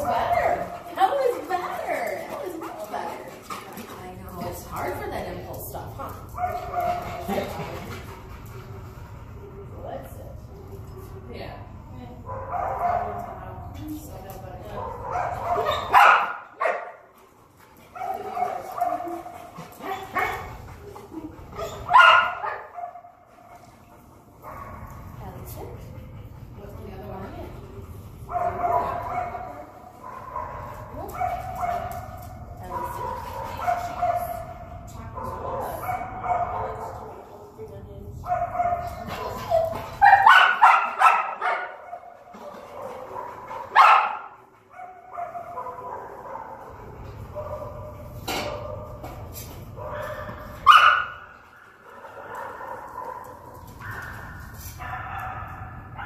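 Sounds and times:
dog barking: 12.3 - 13.3, 14.8 - 17.0, 21.6 - 23.1, 35.2 - 37.1, 38.3 - 42.1, 42.7 - 46.7, 49.8 - 56.0.

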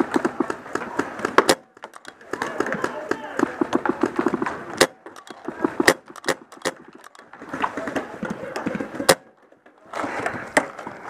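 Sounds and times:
paintball gunfire cracks: 0.0 - 7.2
distant players shouting: 2.0 - 8.7.

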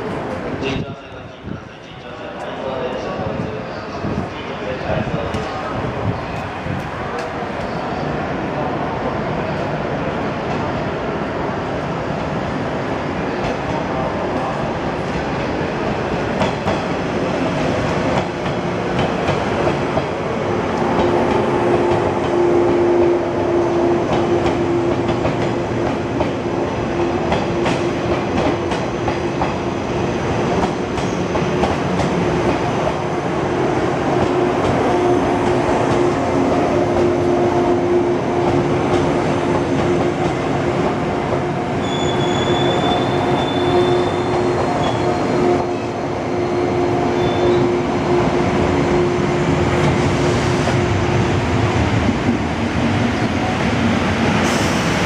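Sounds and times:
constant train hum: 0.0 - 55.0
train wheels rumbling on rail: 0.0 - 55.0
high-pitched wheel squeal: 41.8 - 45.2, 47.2 - 47.7.

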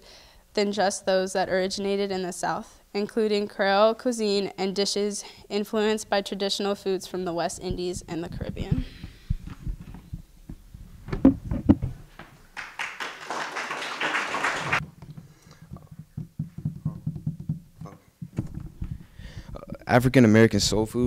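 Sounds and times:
soft low bumps: 7.3 - 12.4, 14.8 - 20.0
microphone thumps: 7.4 - 12.4, 14.8 - 19.8
rustling on microphone: 7.4 - 12.4, 14.8 - 19.7
microphone handling clicks: 7.6 - 12.4, 14.9 - 19.7.

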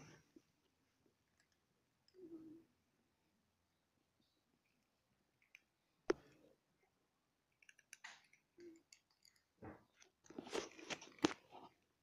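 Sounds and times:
cats crunching dry kibble: 7.6 - 11.8.

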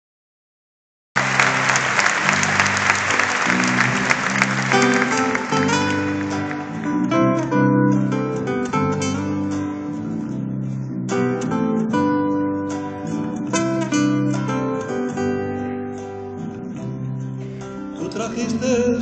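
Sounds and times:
applause: 1.2 - 7.4
acoustic guitar playing: 1.2 - 19.0.

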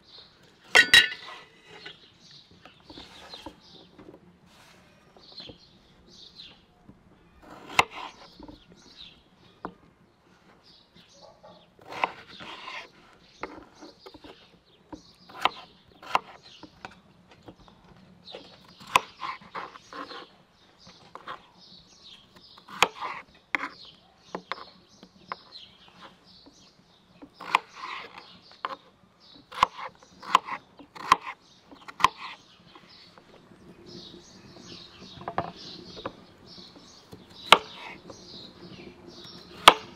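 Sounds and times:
birds chirping: 0.0 - 39.9
knife slicing potatoes: 7.4 - 8.6, 11.8 - 14.5, 15.2 - 17.0, 18.4 - 20.3, 22.6 - 26.2, 27.2 - 32.4, 36.8 - 38.2, 39.2 - 39.9.

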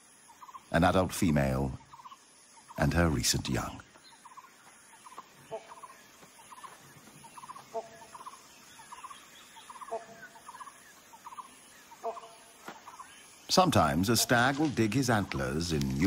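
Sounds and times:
rapid animal trills: 4.2 - 13.1.

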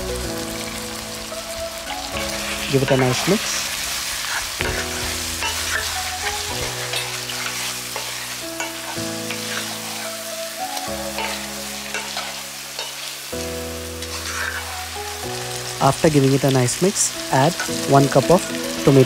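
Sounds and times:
chicken sizzling in oil: 0.0 - 19.0
wooden spatula scraping pan: 2.2 - 10.2, 14.0 - 14.7.

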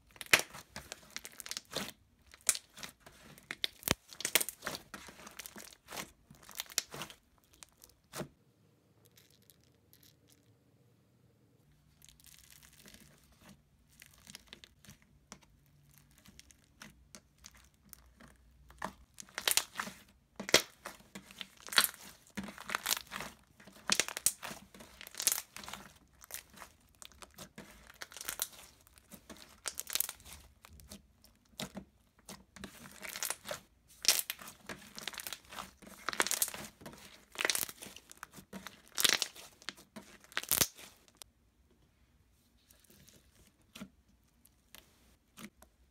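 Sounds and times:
slime crackling and clicking: 40.1 - 40.9.

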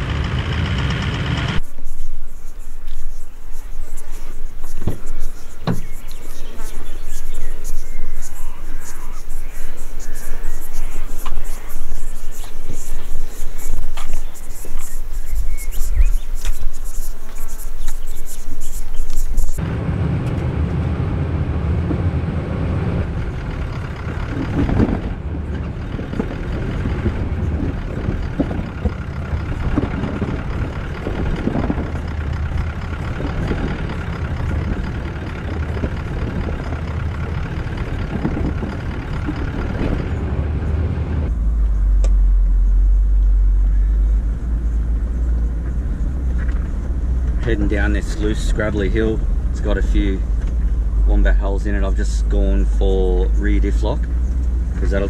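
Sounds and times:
engine drone: 0.0 - 55.0
knocks and bumps: 1.6 - 6.8.

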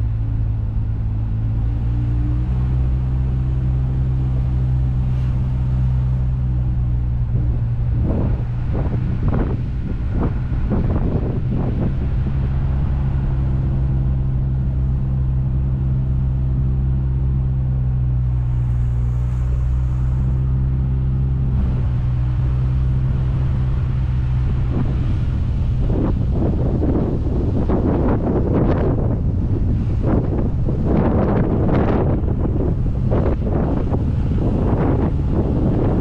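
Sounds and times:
car engine running: 0.0 - 36.0
road and tyre noise: 0.0 - 36.0
wind buffeting microphone: 0.0 - 36.0.

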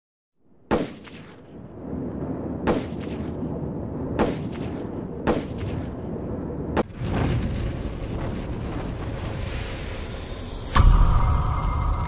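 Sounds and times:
low rumble: 6.0 - 12.0
heavy ringing impact hits: 10.7 - 12.0.

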